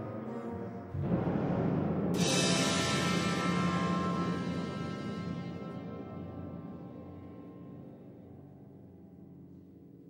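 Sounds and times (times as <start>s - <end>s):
symphony orchestra playing: 0.0s - 8.0s.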